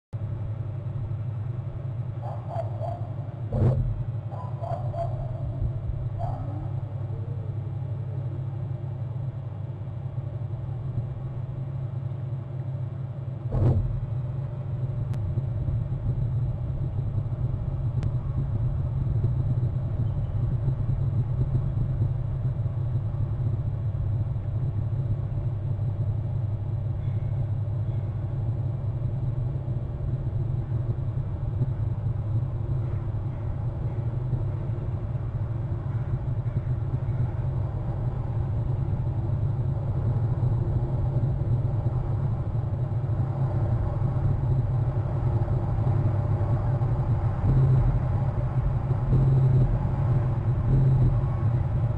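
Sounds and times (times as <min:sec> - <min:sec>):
steady low rumble: 0:00.1 - 0:51.9.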